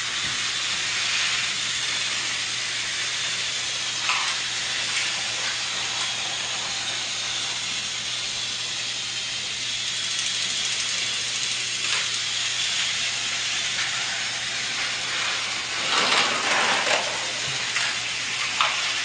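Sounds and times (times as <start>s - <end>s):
steady hissing: 0.0s - 19.0s.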